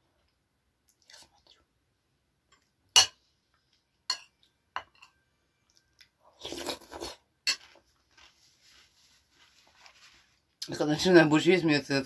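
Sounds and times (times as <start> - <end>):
spoon clinking on ceramic bowl: 4.1 - 5.2
person chewing and eating: 5.6 - 8.3.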